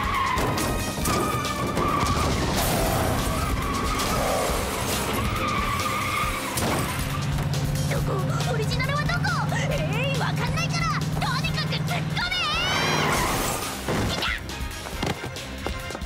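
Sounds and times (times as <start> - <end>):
tyres screeching in a skid: 0.0 - 7.9, 10.3 - 14.5
cartoon car engine running: 0.0 - 14.6
music: 0.0 - 16.0.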